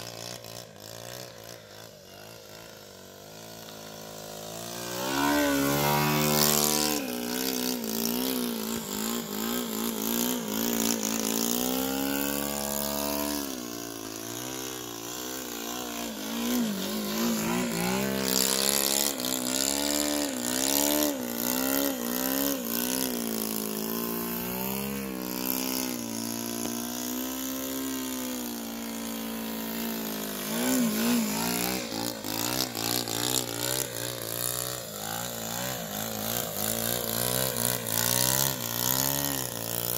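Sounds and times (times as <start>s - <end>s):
model airplane engine: 0.0s - 39.9s.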